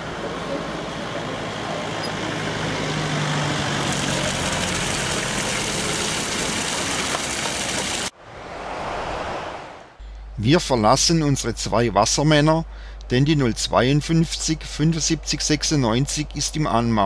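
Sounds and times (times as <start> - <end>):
car passing: 0.0 - 10.0
water gushing from hydrant: 3.0 - 8.1.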